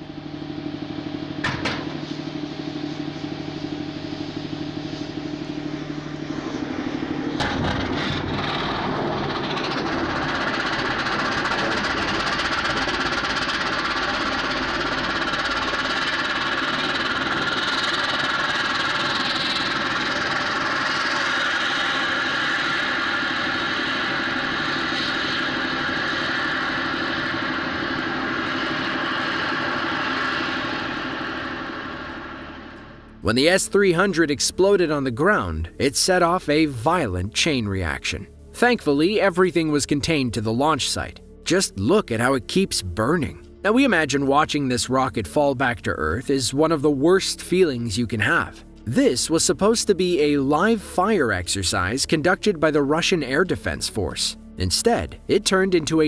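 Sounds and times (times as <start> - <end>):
steady hum: 0.0 - 56.0
loud rushing roar of burning: 0.8 - 33.2.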